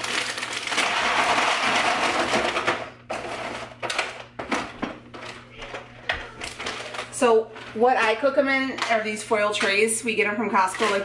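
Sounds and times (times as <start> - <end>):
plastic bag crinkling: 0.0 - 4.0, 5.2 - 8.2, 10.6 - 11.0
frozen meatballs rattling into foil tray: 0.0 - 5.7, 6.4 - 11.0.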